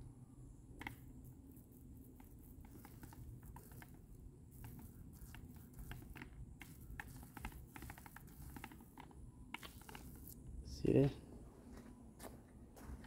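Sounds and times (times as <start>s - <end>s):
paint roller clicking on stucco: 0.8s - 10.4s.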